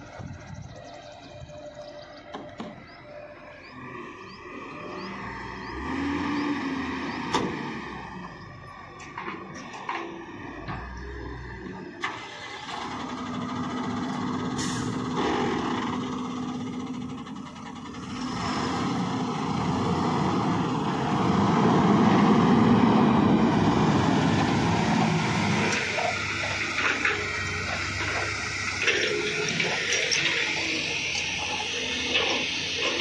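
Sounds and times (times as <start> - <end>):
truck diesel engine running: 0.0 - 33.0.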